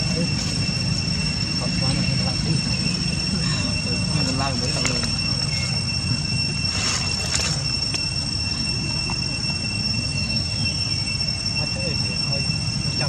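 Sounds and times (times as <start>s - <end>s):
high-pitched insect buzzing: 0.0s - 13.0s.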